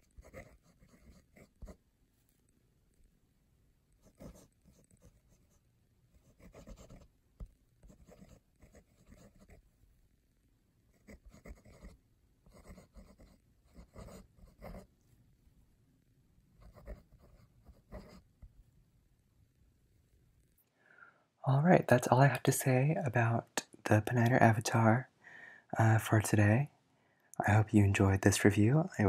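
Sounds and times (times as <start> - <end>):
fountain pen writing on paper: 0.0 - 1.8, 4.0 - 5.6, 6.2 - 7.1, 7.8 - 9.6, 11.0 - 14.9, 16.6 - 18.2.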